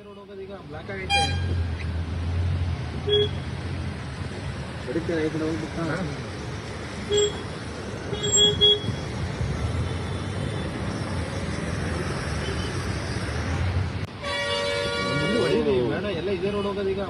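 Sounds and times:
road traffic on wet road: 0.0 - 17.0
vehicle horn tooting: 14.2 - 15.6.

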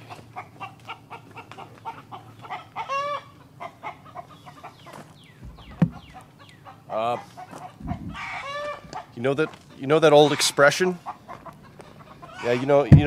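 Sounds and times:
chickens clucking: 0.0 - 13.0
chicken squawk: 0.1 - 13.0
sharp thump: 5.4 - 6.0.

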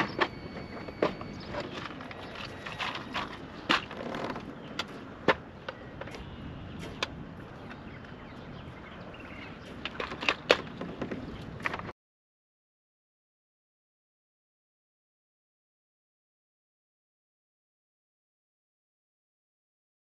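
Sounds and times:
gear knocking on boat: 0.0 - 5.4
water noise: 0.0 - 11.9
wind: 0.0 - 12.0.

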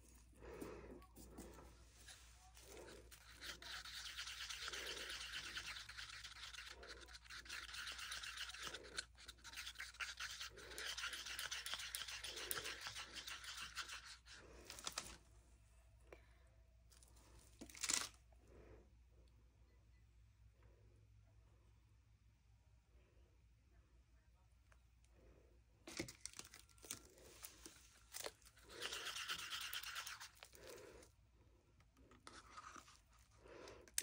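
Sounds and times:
stick scraping inside mixing cup: 0.0 - 15.0, 27.2 - 31.1, 32.0 - 34.0.

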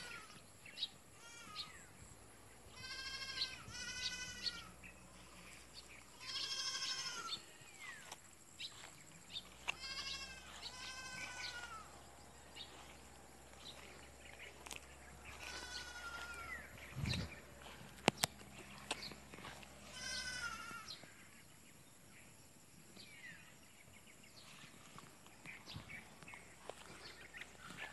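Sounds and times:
goats bleating: 1.2 - 1.8, 2.7 - 5.4, 6.1 - 8.0, 9.4 - 12.0, 13.6 - 18.0, 18.6 - 21.0.

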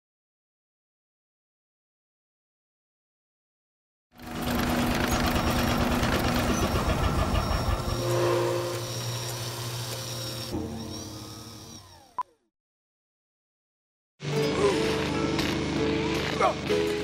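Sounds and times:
cartoon machinery clattering: 4.2 - 12.2
falling whistling tones: 5.2 - 12.2.

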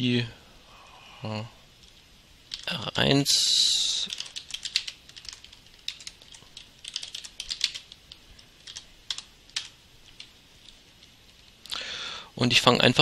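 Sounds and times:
typing on computer keyboard: 4.0 - 10.8.

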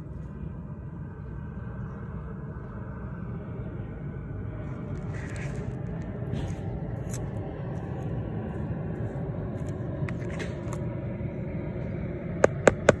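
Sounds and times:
low rumble: 0.0 - 13.0
gritty soil scratches: 4.8 - 10.8
sharp taps: 12.4 - 13.0.

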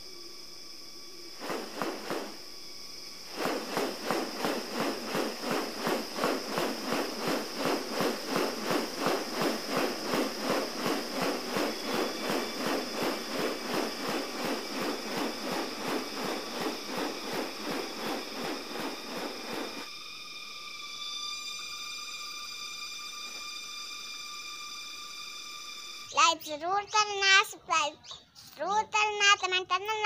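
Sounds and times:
high insect drone: 0.0 - 30.0
bird wings swishing: 1.4 - 2.4, 3.3 - 19.9.

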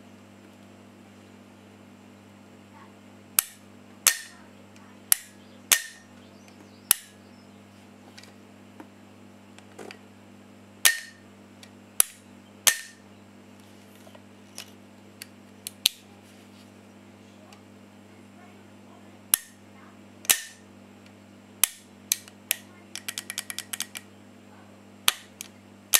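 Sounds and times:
faint steady hum: 0.0 - 25.9
metallic hammer clicks: 19.3 - 19.6, 20.2 - 20.6.

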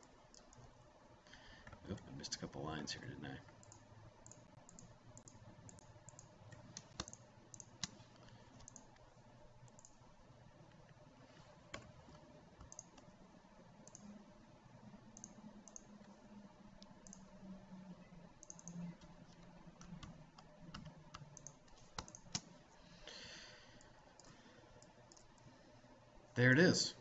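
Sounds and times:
mouse and keyboard clicks: 3.6 - 8.0, 8.6 - 9.0, 11.7 - 13.1, 18.4 - 22.5.

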